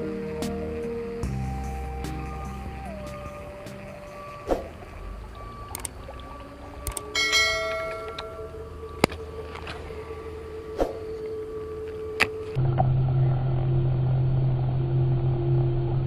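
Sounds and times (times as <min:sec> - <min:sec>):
sharp clicks: 0:05.3 - 0:06.0, 0:06.8 - 0:07.1
bright bell chime: 0:07.2 - 0:08.6.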